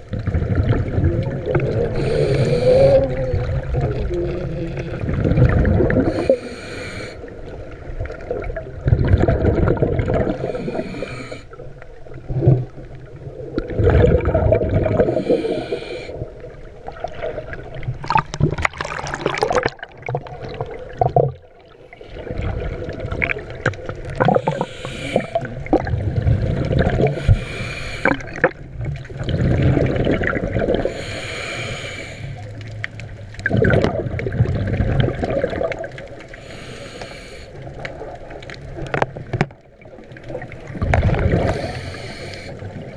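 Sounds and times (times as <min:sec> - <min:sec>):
underwater rumble of moving water: 0:00.0 - 0:42.9
water splashing: 0:00.0 - 0:42.9
breathing through a snorkel: 0:01.8 - 0:03.5, 0:06.0 - 0:07.3, 0:10.2 - 0:11.6, 0:14.9 - 0:16.3, 0:24.3 - 0:25.5, 0:27.0 - 0:28.4, 0:30.7 - 0:32.5, 0:36.3 - 0:37.7, 0:41.3 - 0:42.8.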